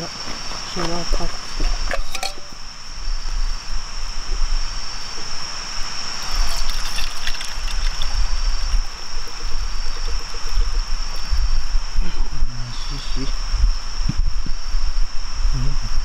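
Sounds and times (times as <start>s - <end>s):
water trickling into cup: 6.2s - 11.4s.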